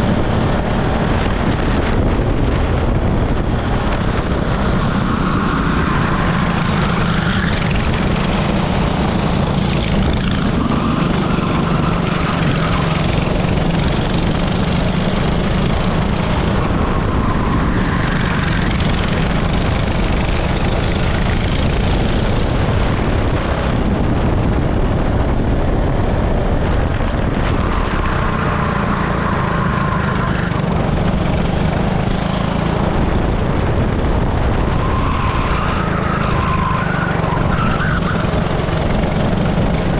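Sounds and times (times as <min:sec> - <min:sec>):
kart engine racing: 0:00.0 - 0:39.9.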